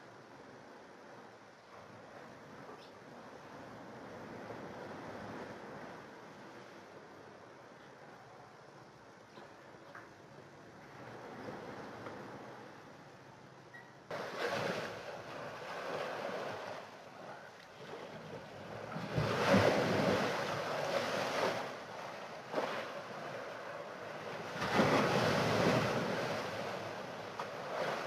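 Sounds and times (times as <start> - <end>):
waves washing against seawall: 14.1 - 28.0.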